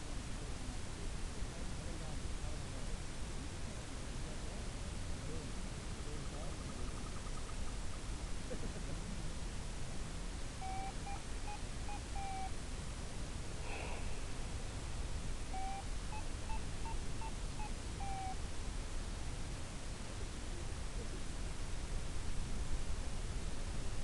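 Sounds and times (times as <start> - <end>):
static hiss: 0.0 - 24.0
rush of noise: 13.5 - 16.2
electronic beeps: 15.5 - 18.4.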